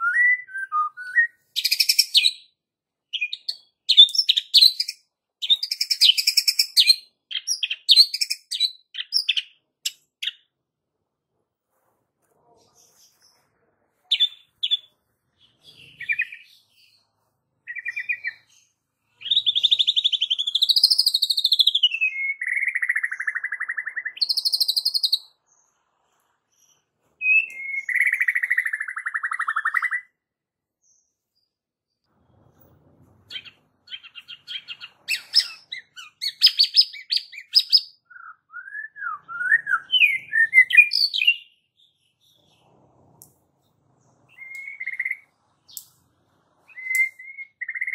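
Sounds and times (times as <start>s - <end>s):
bird singing whistles and trills: 0.0s - 2.5s, 19.2s - 25.3s, 27.2s - 30.2s, 33.3s - 41.6s, 44.3s - 45.8s, 46.6s - 47.9s.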